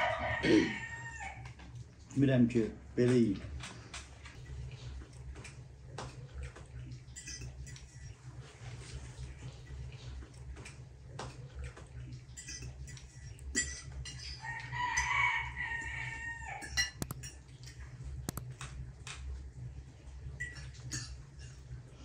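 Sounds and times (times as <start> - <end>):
rooster crowing: 0.0 - 1.6, 14.4 - 17.2
cutlery clinking on plates: 7.2 - 8.1, 12.4 - 14.4, 20.4 - 21.6.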